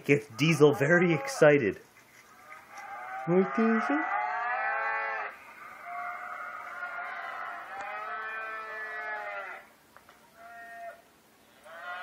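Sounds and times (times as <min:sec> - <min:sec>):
cows mooing through speakers: 0:02.4 - 0:09.7.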